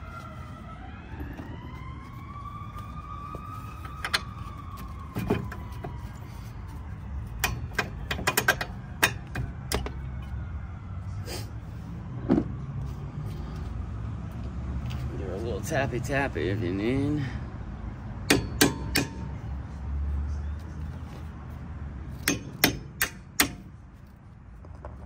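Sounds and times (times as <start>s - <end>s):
distant siren: 0.0s - 20.9s.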